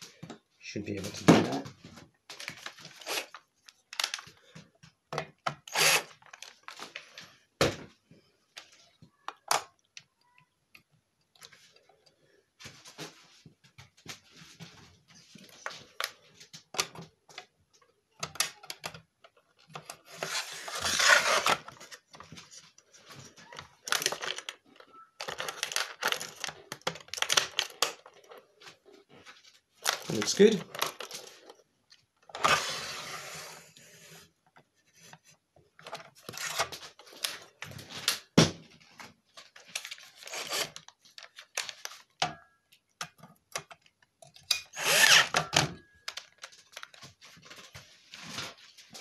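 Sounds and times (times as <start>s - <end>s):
metal and plastic parts clattering: 15.4s - 28.5s, 29.8s - 31.6s.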